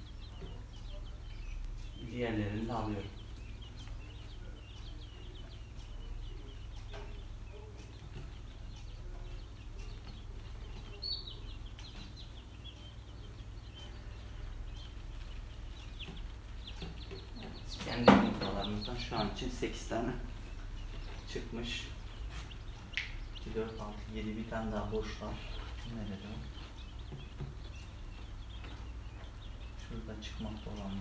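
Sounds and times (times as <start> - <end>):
quail chicks peeping: 0.0 - 31.0.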